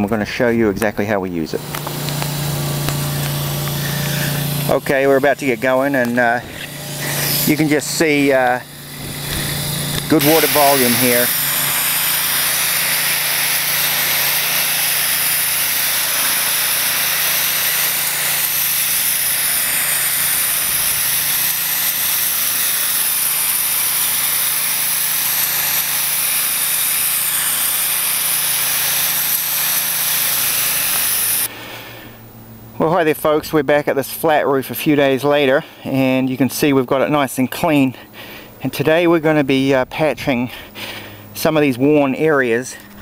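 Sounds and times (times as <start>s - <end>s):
water spray hissing: 1.6s - 32.2s
pump humming: 1.6s - 32.9s, 40.5s - 41.6s.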